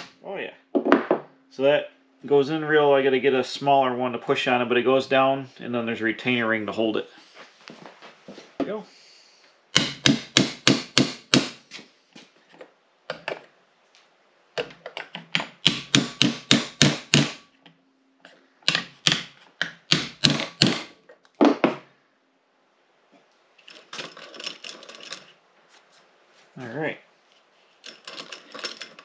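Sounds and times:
hammer tapping metal: 0:09.8 - 0:11.6, 0:15.4 - 0:17.4.

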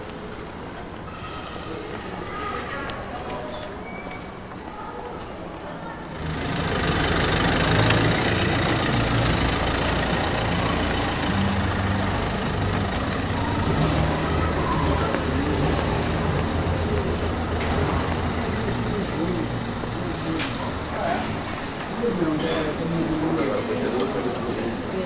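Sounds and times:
engine running at low revs: 0:06.2 - 0:21.6.

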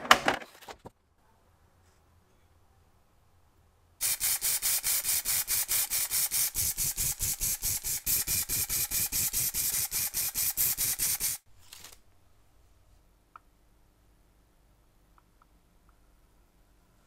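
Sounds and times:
aerosol spray pulsing hiss: 0:04.0 - 0:11.4.

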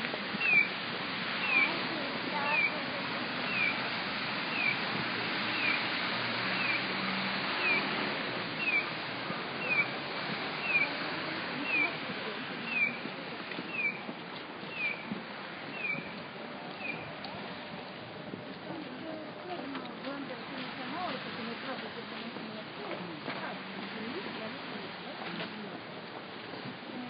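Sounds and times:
street noise: 0:00.0 - 0:27.0
pedestrian crossing signal chirp: 0:00.3 - 0:00.8, 0:01.4 - 0:15.1, 0:15.7 - 0:17.9.

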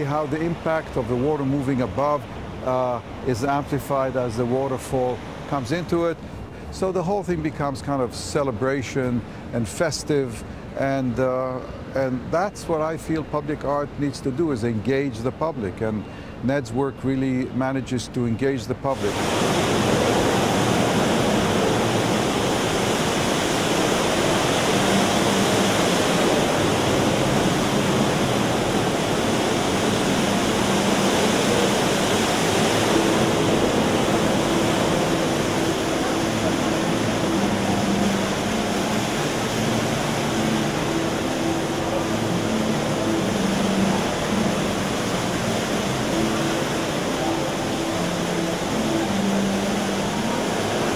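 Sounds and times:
water rushing and pouring: 0:18.9 - 0:50.9.

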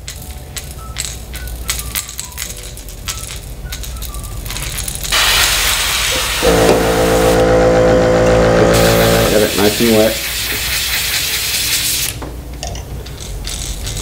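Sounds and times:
airbrush spraying hiss: 0:05.1 - 0:07.4, 0:08.7 - 0:12.2
compressor motor humming: 0:05.2 - 0:10.2.

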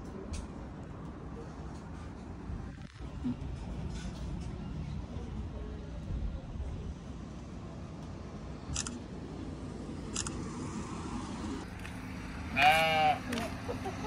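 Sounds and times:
camera shutter clicks: 0:08.7 - 0:09.0, 0:10.1 - 0:10.4
sheep bleating: 0:12.5 - 0:13.4.

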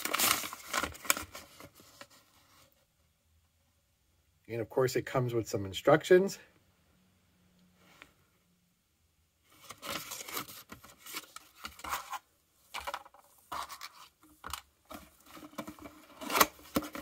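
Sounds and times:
paper and cardboard rustling: 0:00.0 - 0:02.8, 0:09.5 - 0:17.0.

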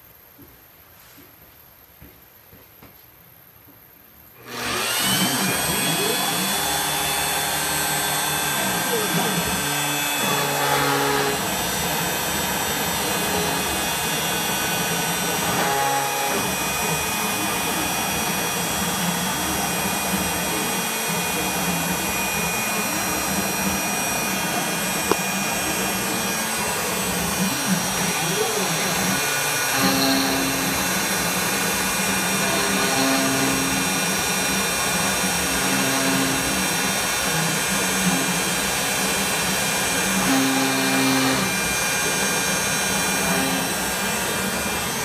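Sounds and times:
drive motors changing pitch: 0:04.4 - 0:31.1
router motor whining: 0:04.4 - 0:45.0.

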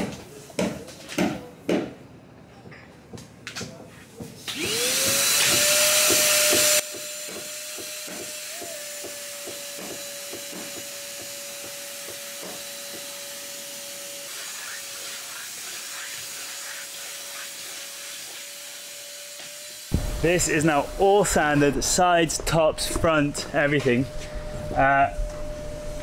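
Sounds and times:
shop vacuum motor whine: 0:04.5 - 0:09.4.

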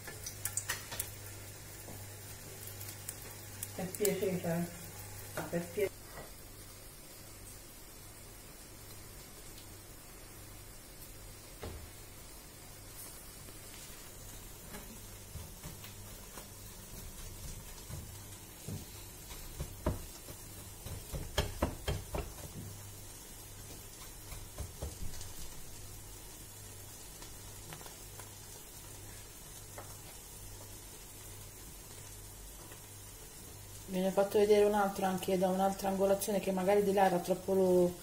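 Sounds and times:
faint steady hiss: 0:00.0 - 0:38.0
fish tapping on breadcrumb plate: 0:17.4 - 0:22.7.

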